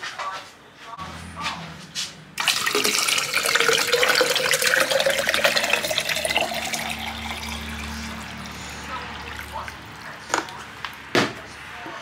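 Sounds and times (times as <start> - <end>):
water pouring from jug: 2.4 - 10.2.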